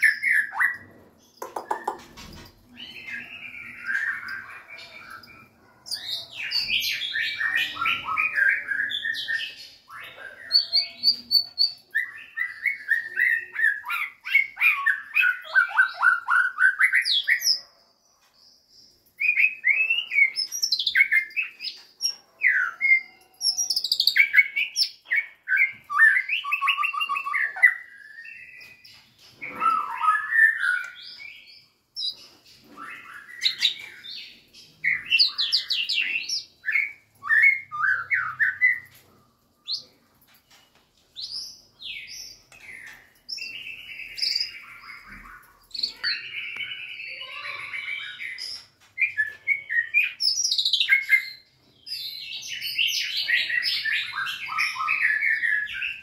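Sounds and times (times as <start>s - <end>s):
bird singing whistled notes: 22.5s - 32.2s, 40.5s - 56.0s.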